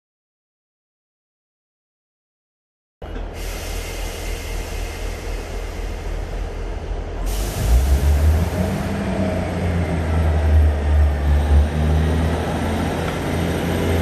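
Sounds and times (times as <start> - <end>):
diesel engine droning: 3.1 - 14.0
hiss of air: 3.4 - 9.5.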